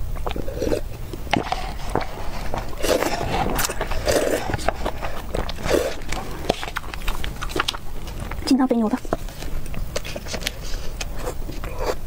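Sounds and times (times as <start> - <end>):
person slurping soup: 0.2 - 6.8
chopsticks pushing noodles: 0.2 - 12.0.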